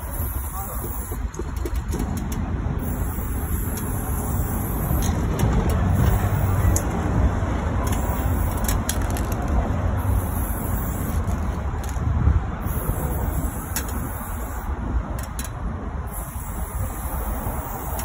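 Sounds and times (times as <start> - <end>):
city street traffic rumble: 0.0 - 18.0.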